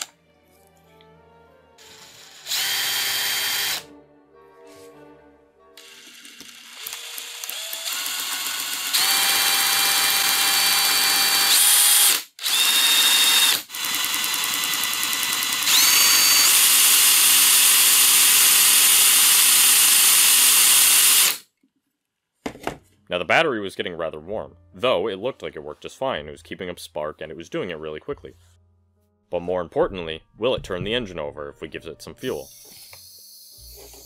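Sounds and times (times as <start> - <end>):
cordless drill motor whine: 1.8 - 3.8, 5.8 - 21.4.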